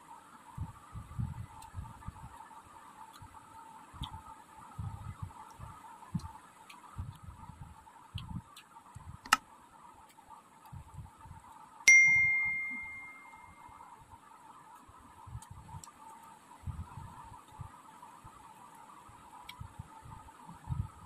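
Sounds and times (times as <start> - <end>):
soft chewing: 1.5 - 9.2
bright metallic bell ding: 11.9 - 13.6.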